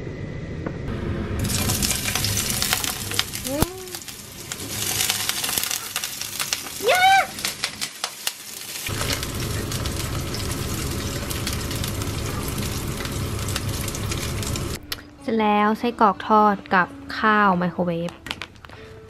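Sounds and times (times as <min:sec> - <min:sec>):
sausage sizzling in a frying pan: 0:01.4 - 0:14.8.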